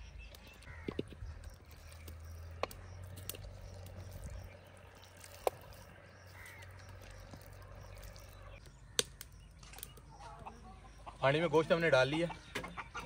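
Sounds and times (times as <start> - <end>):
crow cawing: 0.6 - 1.0, 6.2 - 7.8.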